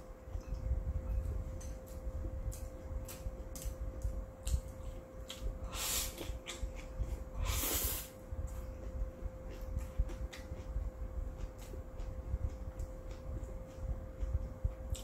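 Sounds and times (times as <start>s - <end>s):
faint steady hum: 0.0s - 15.0s
wet chewing: 8.5s - 15.0s.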